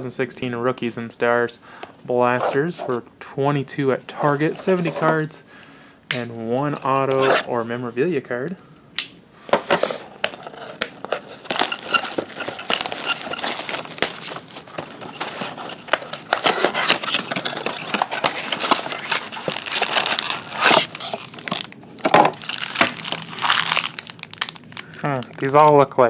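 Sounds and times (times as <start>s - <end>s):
plastic wrap crinkling and tearing: 10.2s - 25.9s
foil packs crinkling: 10.2s - 26.0s.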